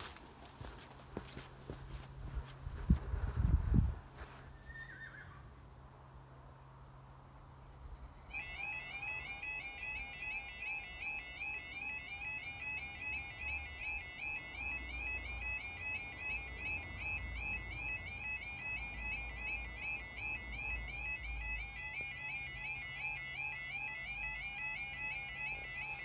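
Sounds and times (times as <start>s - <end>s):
level crossing alarms warbling: 8.2s - 26.0s.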